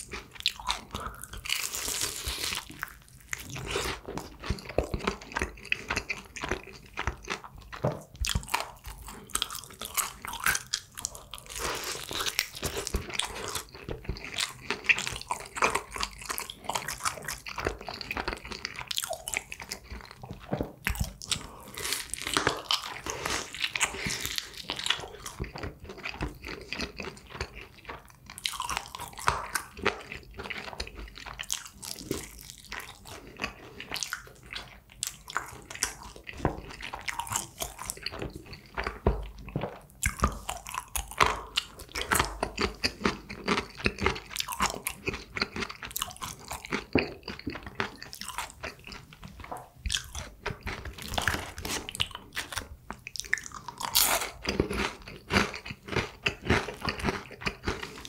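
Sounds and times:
crunching fried chicken: 0:00.0 - 0:58.0
wet chewing: 0:00.0 - 0:58.0.

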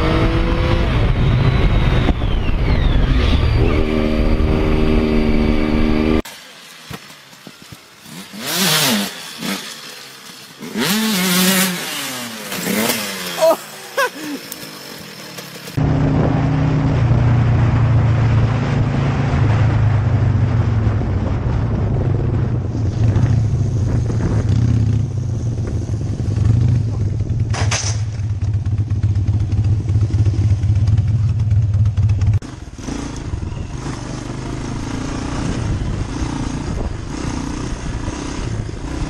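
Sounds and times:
motorcycle engine revving: 0:00.0 - 0:06.3, 0:07.0 - 0:39.0
motorcycle engine running low: 0:12.3 - 0:39.0.

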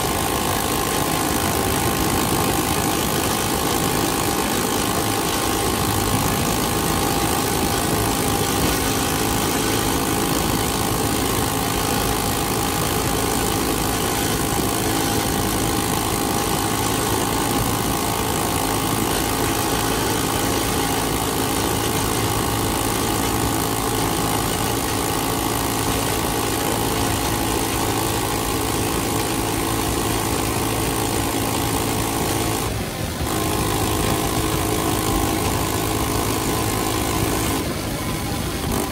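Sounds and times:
minibike engine running: 0:00.0 - 0:38.9.

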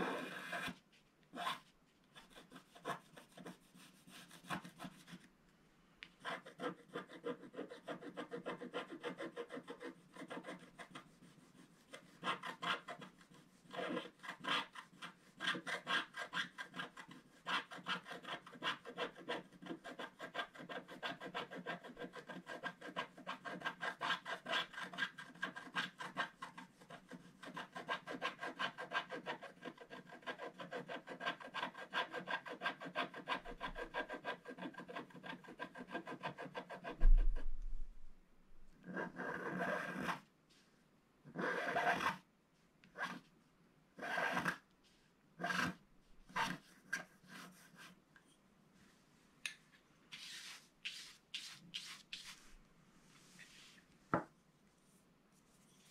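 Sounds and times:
stick scratching coated paper: 0:01.4 - 0:05.3, 0:06.2 - 0:37.4, 0:50.1 - 0:52.6.

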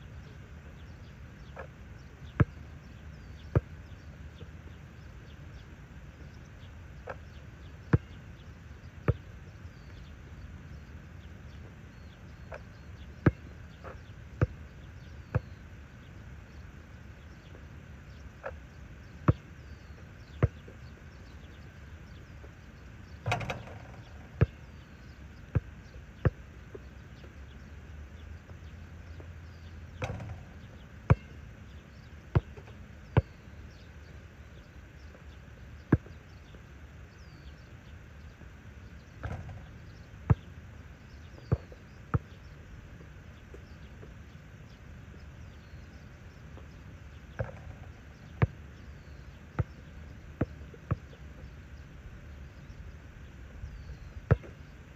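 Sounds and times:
basketball bouncing on asphalt: 0:02.4 - 0:04.5, 0:07.9 - 0:08.2, 0:09.1 - 0:10.0, 0:12.2 - 0:13.8, 0:14.4 - 0:15.6, 0:19.3 - 0:21.6, 0:23.2 - 0:26.4, 0:29.2 - 0:31.4, 0:32.0 - 0:33.8, 0:35.9 - 0:36.2, 0:39.2 - 0:40.5, 0:41.4 - 0:42.4, 0:47.4 - 0:49.8, 0:53.7 - 0:54.6
ball hitting metal hoop: 0:23.2 - 0:24.6, 0:30.0 - 0:31.3, 0:39.2 - 0:39.7.

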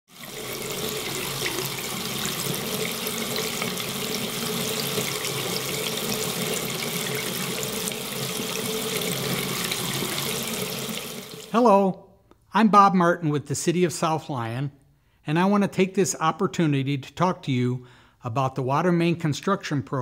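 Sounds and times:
faucet water running into sink: 0:00.1 - 0:11.5.

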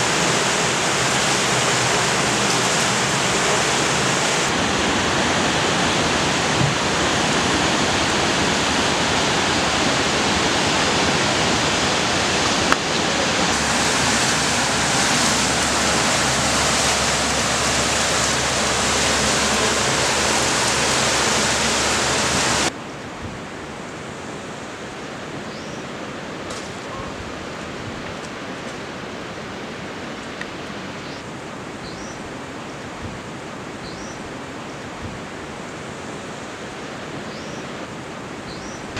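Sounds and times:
even hiss: 0:00.0 - 0:22.7
river rushing in flood: 0:00.0 - 0:38.9.

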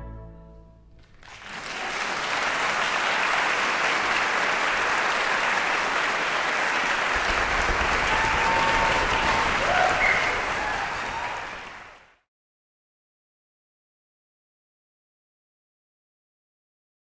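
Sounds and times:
audience applause: 0:01.0 - 0:12.2.

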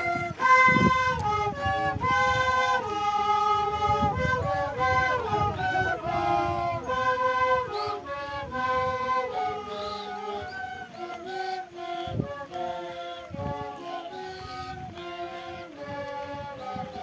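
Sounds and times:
wooden flutes playing a melody: 0:00.0 - 0:17.0.

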